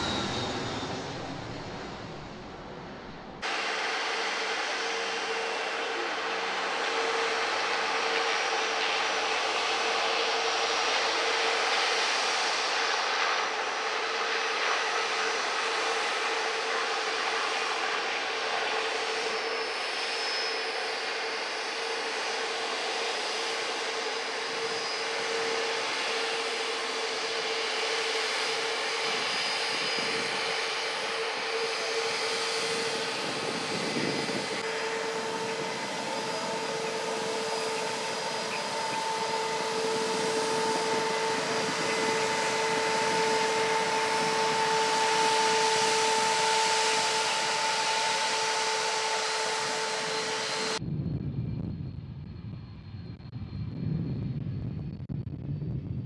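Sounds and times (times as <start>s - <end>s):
low rumble: 0.0s - 3.5s, 50.8s - 56.0s
rushing noise: 0.0s - 8.0s, 31.1s - 51.0s
jet engines whining: 0.0s - 55.6s.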